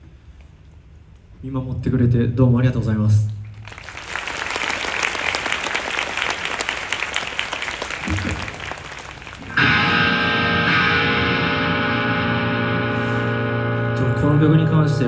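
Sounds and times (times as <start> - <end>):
audience applauding: 3.5 - 9.7.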